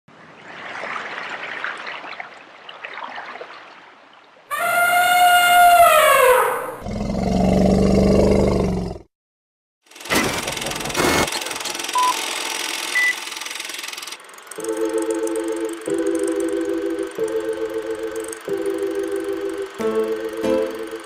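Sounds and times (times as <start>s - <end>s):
elephant trumpeting: 4.5s - 6.8s
deep roar: 5.7s - 9.1s.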